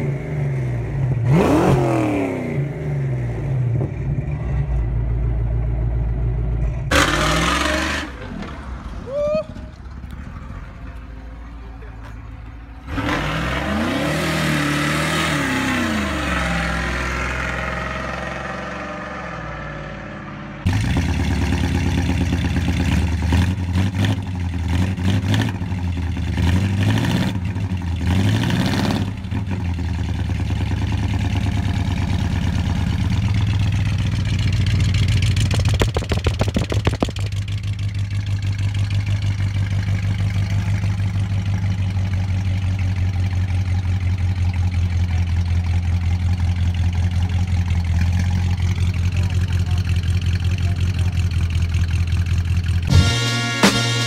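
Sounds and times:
car engine revving: 0.0s - 4.8s, 6.7s - 9.0s, 12.4s - 42.2s
engine idling with rapid throb: 32.6s - 54.0s.

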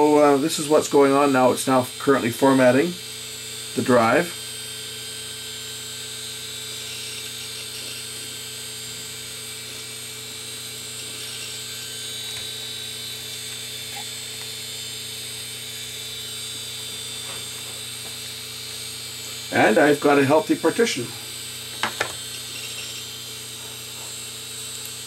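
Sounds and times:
hard drive whining: 0.0s - 25.0s.

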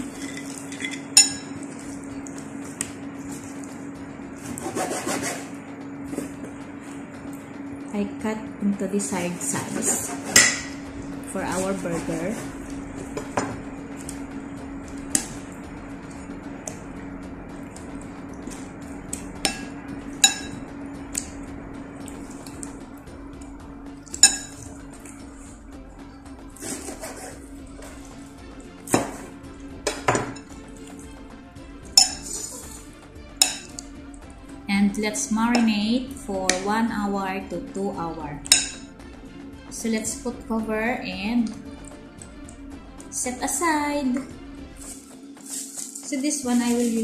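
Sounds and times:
steady low hum: 0.0s - 47.0s
metal spoon clinking ceramic bowl: 0.1s - 1.6s, 19.5s - 20.6s, 32.0s - 32.5s.

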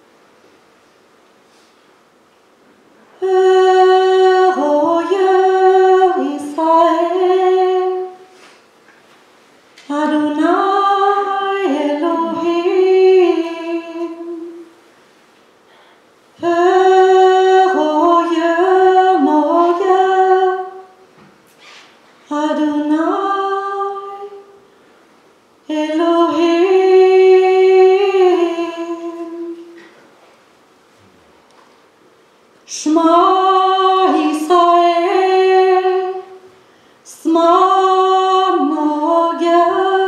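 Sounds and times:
woman singing: 3.2s - 8.3s, 9.8s - 14.7s, 16.4s - 21.0s, 22.2s - 24.6s, 25.6s - 29.8s, 32.7s - 36.5s, 37.1s - 40.0s.

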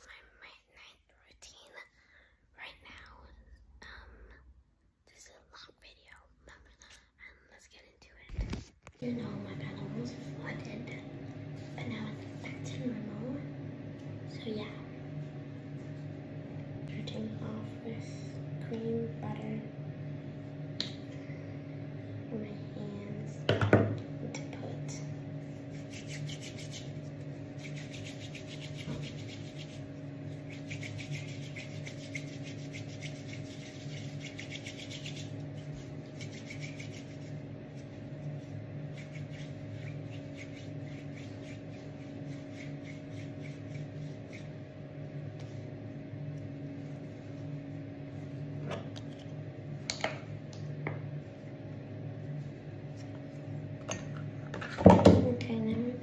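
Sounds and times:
steady low hum: 0.0s - 56.0s
hands rubbing together: 25.4s - 44.7s.

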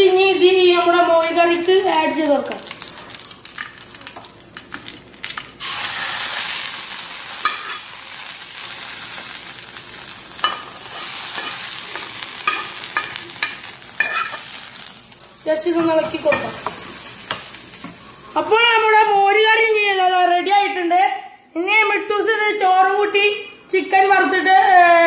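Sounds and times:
hot oil sizzling: 0.0s - 19.2s
spoon scraping pan: 10.4s - 14.4s.

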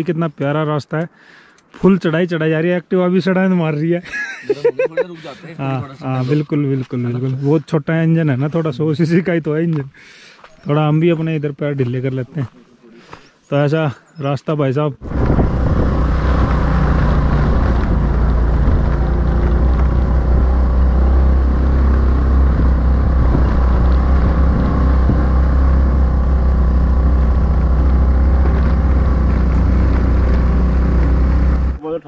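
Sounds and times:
scooter engine low rumble: 15.0s - 31.8s.

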